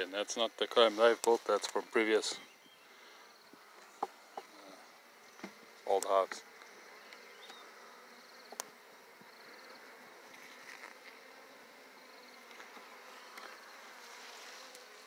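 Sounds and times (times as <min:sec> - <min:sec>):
bees buzzing: 0:00.2 - 0:15.0.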